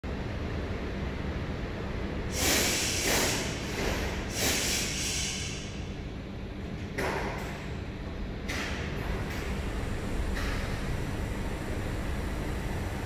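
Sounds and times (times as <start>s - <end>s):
train low rumble: 0.0s - 13.0s
loud hissing bursts: 2.3s - 5.8s.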